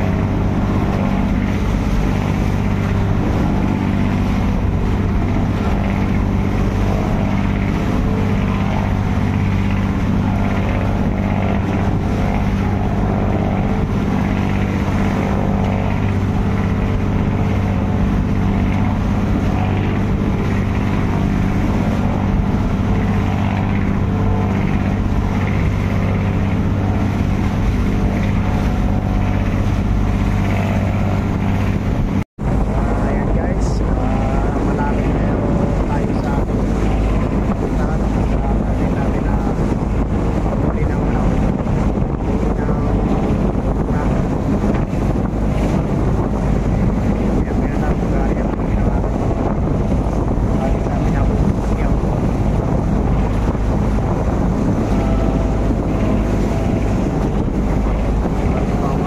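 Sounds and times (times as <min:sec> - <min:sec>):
boat engine droning: 0:00.0 - 0:59.0.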